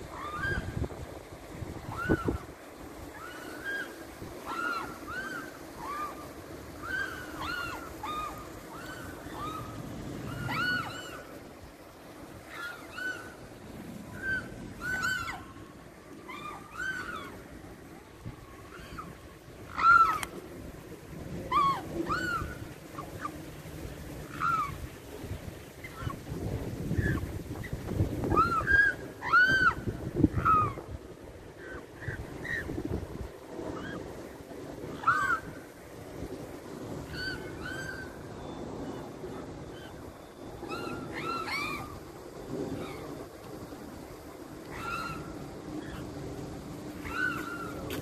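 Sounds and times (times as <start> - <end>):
swan cygnet peeping: 0.0 - 0.9, 1.8 - 2.5, 3.1 - 11.4, 12.4 - 17.4, 18.5 - 20.4, 21.4 - 23.4, 24.2 - 24.8, 34.9 - 35.6, 37.0 - 42.1, 44.7 - 46.2, 47.0 - 48.0
background hiss: 0.0 - 48.0.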